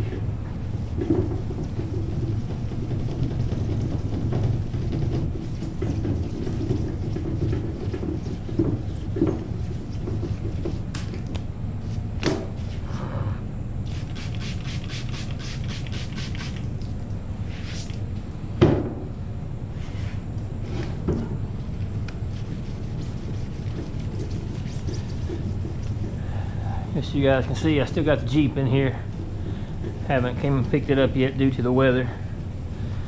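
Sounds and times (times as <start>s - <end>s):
hand pad wet sanding: 0.6s - 12.0s, 13.9s - 16.7s, 21.7s - 33.0s.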